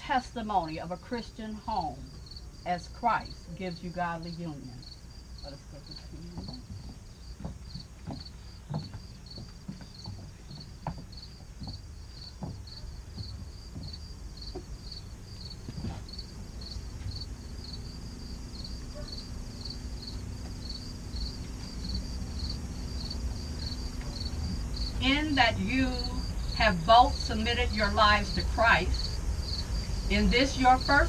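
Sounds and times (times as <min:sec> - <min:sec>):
insects chirping: 0:00.0 - 0:31.0
low outdoor rumble: 0:00.0 - 0:31.0
faint knocks: 0:05.9 - 0:15.0.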